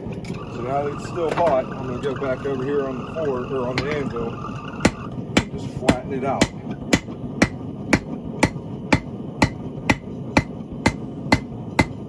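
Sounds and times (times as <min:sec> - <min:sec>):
hammer striking metal on anvil: 0:04.8 - 0:12.0.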